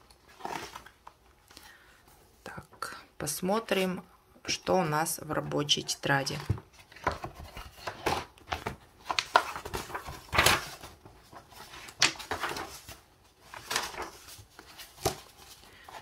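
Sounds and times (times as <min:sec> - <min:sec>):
paper pages turning: 0:00.1 - 0:01.2, 0:06.3 - 0:16.0.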